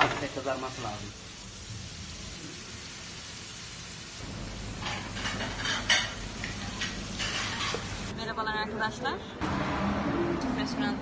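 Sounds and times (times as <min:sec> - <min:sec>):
stew sizzling and bubbling: 0:00.0 - 0:08.2.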